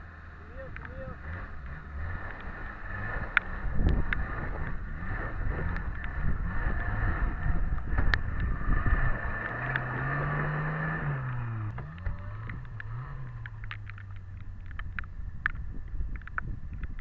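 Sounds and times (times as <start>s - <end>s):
engine revving: 0.0s - 15.6s
off-road vehicle engine rumbling: 0.0s - 17.0s
sharp clicks: 11.2s - 17.0s.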